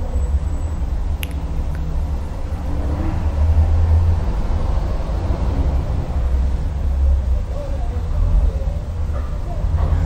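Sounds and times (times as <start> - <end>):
sharp click: 1.2 - 1.9.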